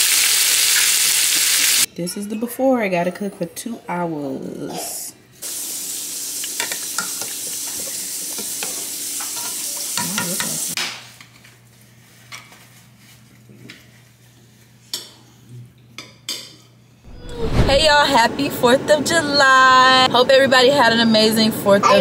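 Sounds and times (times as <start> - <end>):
meat sizzling in a pot: 0.0 - 1.9, 5.4 - 10.8
low hum: 17.1 - 19.0.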